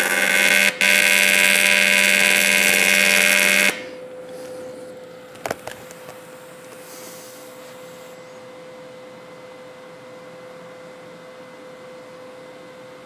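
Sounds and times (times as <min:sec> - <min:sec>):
welding arc buzzing: 0:00.0 - 0:04.2.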